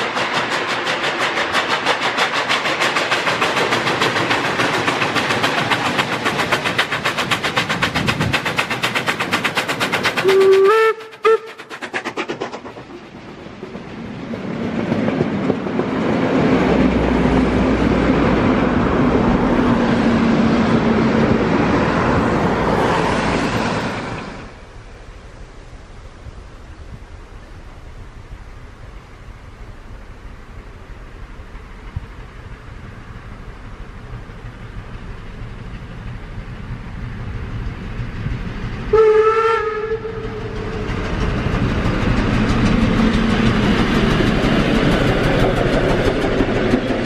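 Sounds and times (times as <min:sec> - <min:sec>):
steam locomotive chuffing: 0:00.0 - 0:25.4, 0:26.6 - 0:47.0
train whistle: 0:10.2 - 0:11.7, 0:38.9 - 0:40.9.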